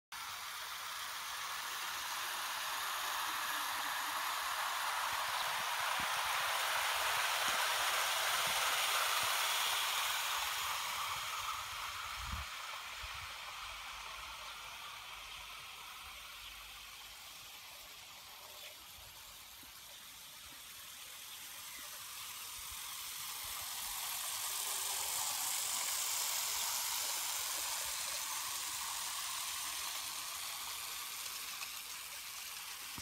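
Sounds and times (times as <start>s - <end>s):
model train wheels rattling on rail: 0.2s - 33.0s.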